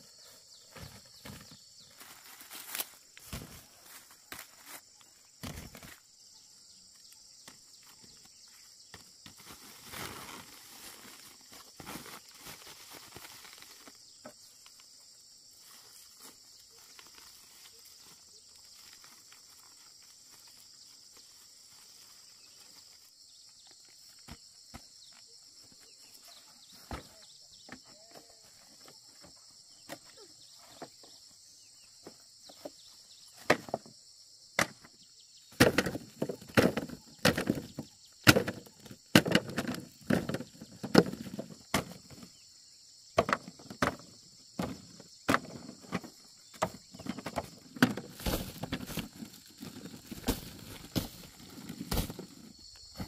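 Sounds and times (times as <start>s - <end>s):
insects chirring: 0.0s - 53.0s
corn cobs clattering into a sack: 0.6s - 4.8s, 5.4s - 6.0s, 8.9s - 14.8s, 32.0s - 33.9s, 34.6s - 42.4s, 43.2s - 53.0s.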